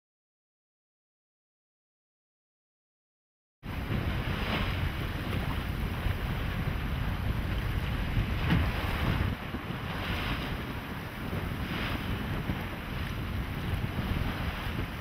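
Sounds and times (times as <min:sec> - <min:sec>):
wind buffeting microphone: 0:03.6 - 0:15.0.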